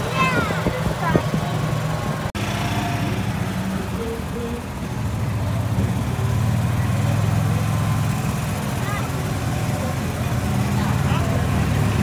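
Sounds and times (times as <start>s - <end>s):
vehicle engine low hum: 0.0s - 12.0s.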